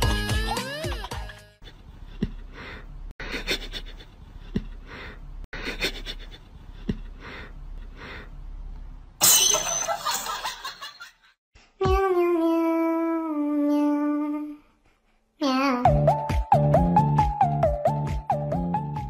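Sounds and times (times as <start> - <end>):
person laughing breathily: 0.7 - 8.3.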